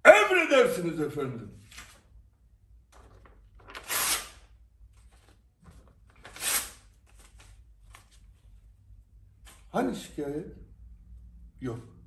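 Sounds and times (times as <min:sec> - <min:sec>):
faint paper rustling: 0:01.6 - 0:03.8, 0:04.8 - 0:09.7.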